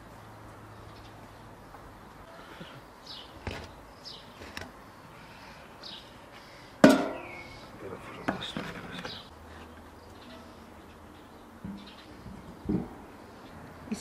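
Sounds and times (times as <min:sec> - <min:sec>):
metal pans clanking on iron rack: 0:06.8 - 0:07.3.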